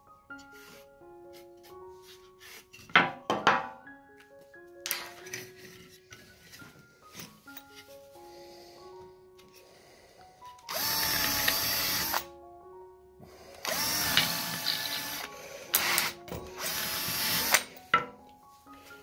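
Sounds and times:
background music: 0.0s - 19.0s
power drill boring into wood: 10.7s - 12.3s, 13.6s - 17.8s.

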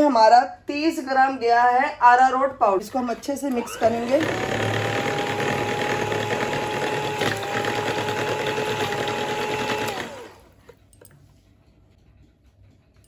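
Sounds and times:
electric hand mixer whisking batter: 3.0s - 10.8s.

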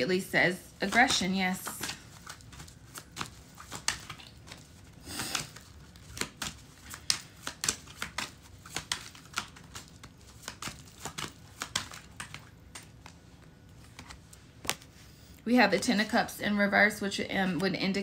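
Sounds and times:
cards rustling: 0.7s - 15.2s
cards being shuffled: 0.8s - 15.1s.

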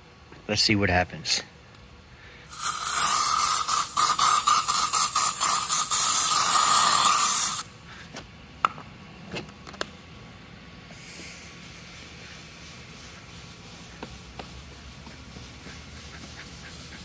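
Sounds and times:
aerosol can spraying: 2.5s - 7.7s.

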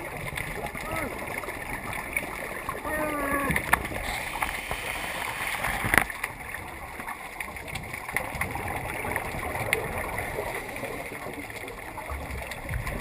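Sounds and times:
underwater bubbles gurgling: 0.0s - 13.0s
steady hiss: 4.0s - 6.1s.

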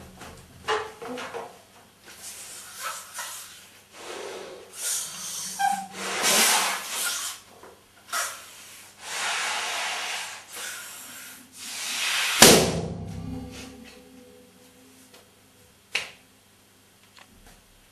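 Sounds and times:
breath puffs into balloon: 2.2s - 7.4s, 8.2s - 12.5s.

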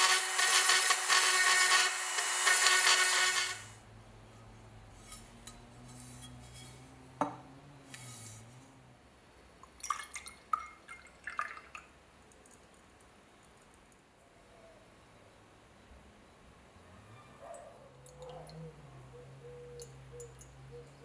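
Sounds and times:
liquid dripping into glass beaker: 9.6s - 12.8s.

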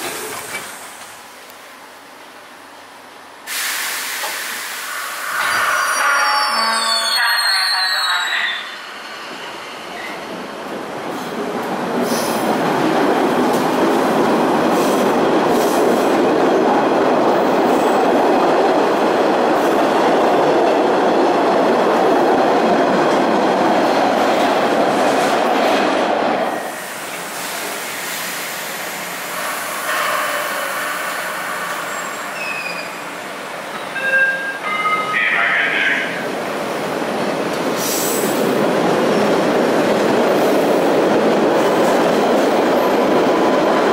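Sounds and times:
subway train running: 0.0s - 43.9s
train wheels squealing: 5.3s - 10.2s, 29.8s - 33.1s.

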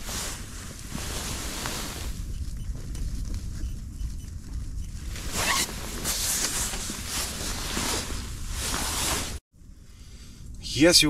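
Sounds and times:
nylon clothing rustling: 0.0s - 2.4s, 5.0s - 9.4s.

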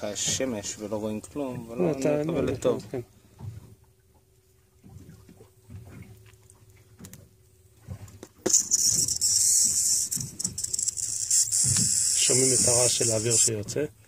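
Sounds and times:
air hissing through needle: 8.5s - 13.5s.

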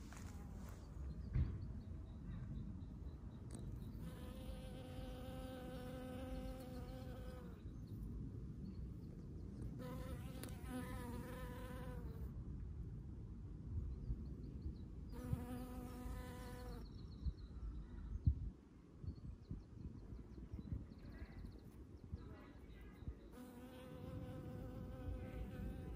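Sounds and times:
short thump: 1.2s - 1.8s.

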